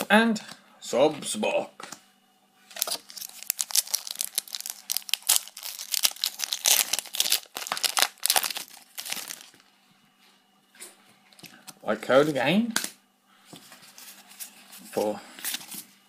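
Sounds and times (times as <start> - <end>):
foil wrapper crinkling and tearing: 2.7 - 9.6.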